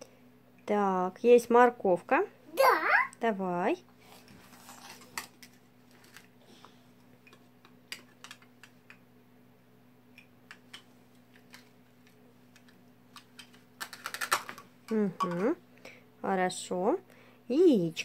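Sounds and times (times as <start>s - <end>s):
plastic toys clicking and tapping: 7.2s - 9.0s, 10.2s - 15.6s.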